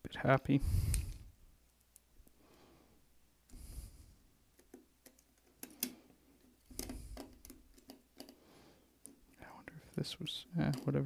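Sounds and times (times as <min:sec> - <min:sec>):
soft handling noise: 0:04.5 - 0:11.0.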